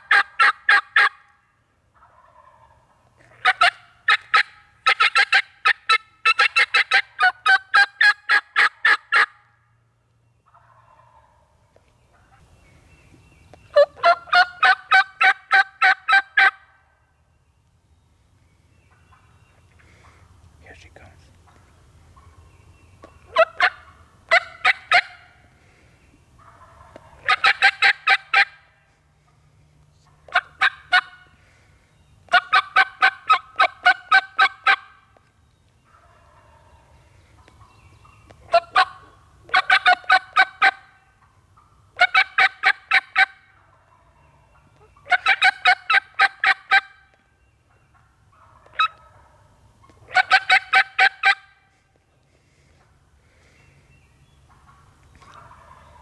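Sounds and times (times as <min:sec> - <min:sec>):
wild turkey calling: 0:00.0 - 0:09.8, 0:10.4 - 0:17.5, 0:18.1 - 0:56.0.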